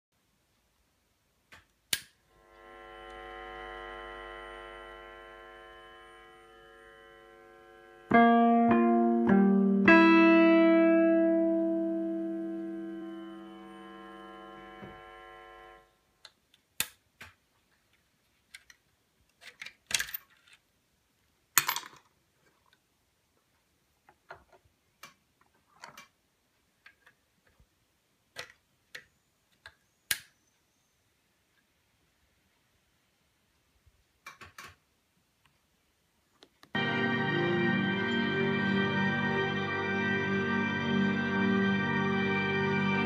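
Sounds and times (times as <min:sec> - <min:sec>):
electric piano chords and notes: 0:07.3 - 0:15.8, 0:36.8 - 0:43.0.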